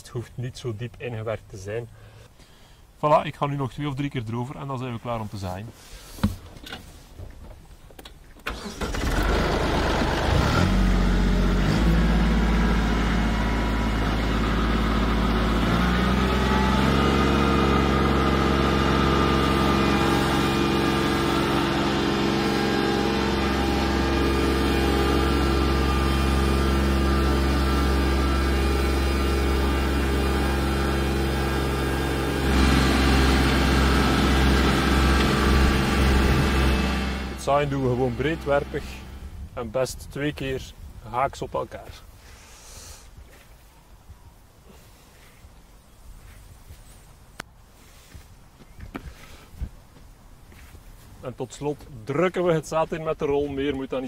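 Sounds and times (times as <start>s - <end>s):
tractor engine running: 8.0s - 39.6s.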